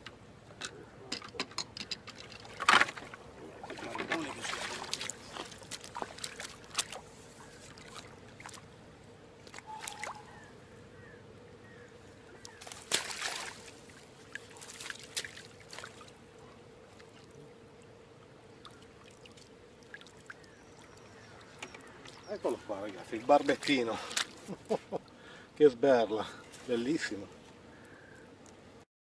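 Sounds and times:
fish splashing in water: 3.6s - 8.7s, 9.4s - 10.5s, 12.4s - 16.1s, 18.6s - 22.4s.

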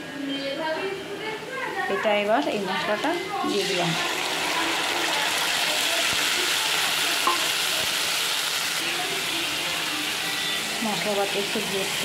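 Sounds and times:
spice paste sizzling in hot oil: 3.4s - 12.0s.

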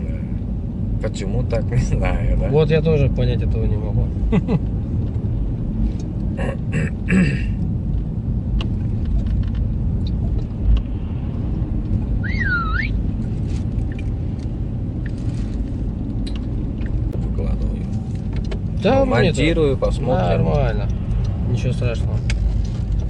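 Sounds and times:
road and tyre rumble: 0.0s - 23.0s
warbling chirp: 12.2s - 13.0s.

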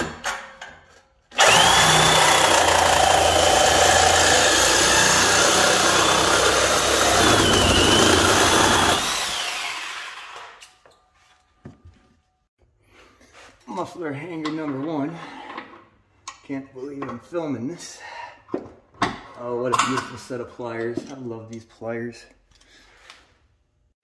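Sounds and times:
reciprocating saw cutting metal pipe: 1.4s - 10.6s.

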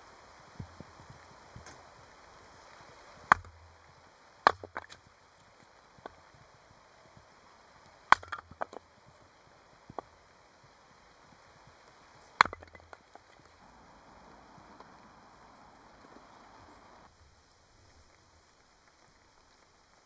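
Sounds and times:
hatchet chopping firewood: 3.2s - 6.4s, 7.9s - 9.3s, 9.9s - 10.2s, 12.3s - 13.6s
split wood pieces falling: 3.3s - 6.2s, 8.1s - 8.9s, 12.4s - 13.6s.

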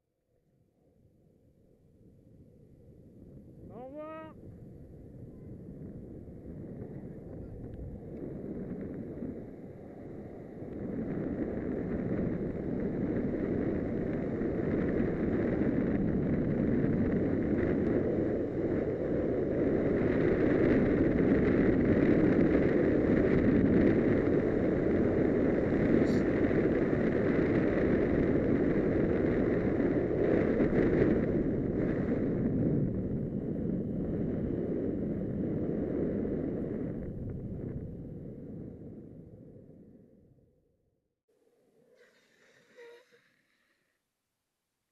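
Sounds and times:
wind rushing over microphone: 2.0s - 40.5s
skateboard wheels rolling on asphalt: 4.4s - 40.2s.

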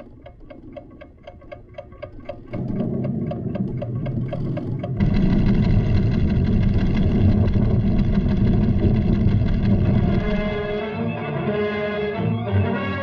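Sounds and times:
seismograph ticking rapidly: 0.0s - 11.0s
deep rumble: 4.9s - 10.9s.

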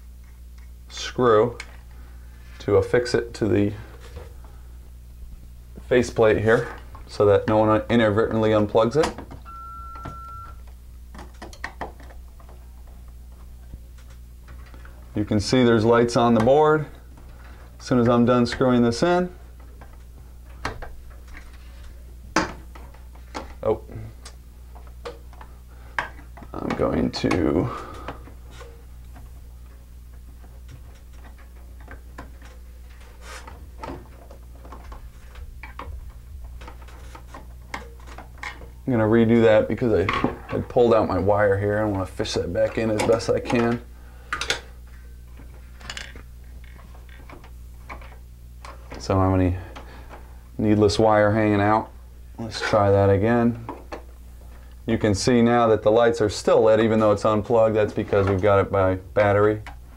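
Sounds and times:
low steady hum: 0.0s - 59.9s
electronic beep: 9.5s - 10.6s.

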